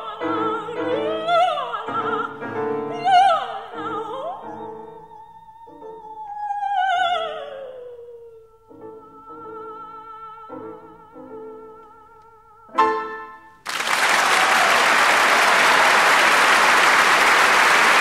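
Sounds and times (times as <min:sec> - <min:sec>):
soprano singing: 0:00.0 - 0:13.6
piano accompaniment: 0:08.7 - 0:13.6.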